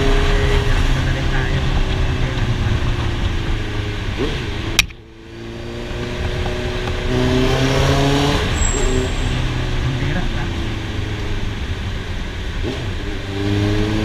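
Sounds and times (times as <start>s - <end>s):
motorcycle engine accelerating: 0.0s - 14.0s
sharp click: 4.7s - 5.0s.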